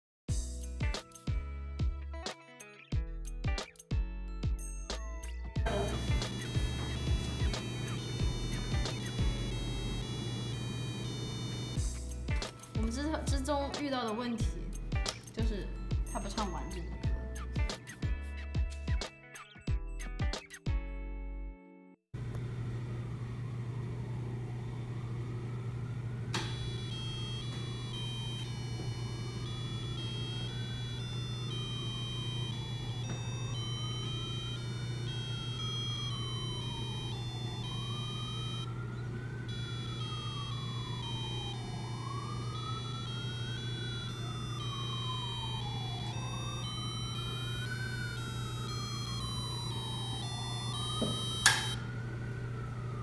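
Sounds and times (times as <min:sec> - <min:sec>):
beeping electronic tune: 0:05.7 - 0:11.8, 0:26.6 - 0:38.8, 0:39.4 - 0:51.8
siren-like electronic tone: 0:05.7 - 0:11.8, 0:26.3 - 0:53.0.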